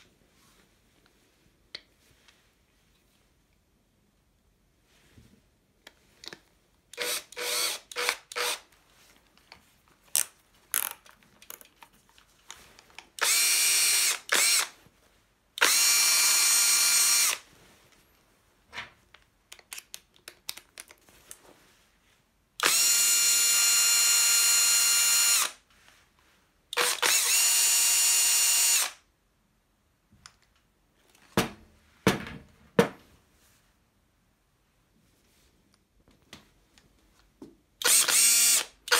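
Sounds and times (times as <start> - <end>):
cordless drill motor running: 7.0 - 8.6, 13.2 - 14.8, 15.6 - 17.4, 22.6 - 25.6, 26.8 - 29.0, 37.8 - 38.9.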